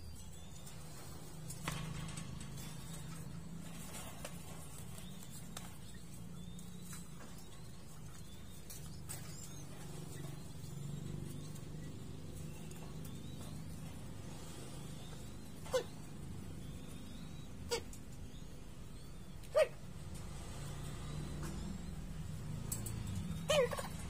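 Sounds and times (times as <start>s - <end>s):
rustling of feathers and wings: 0.0s - 16.4s.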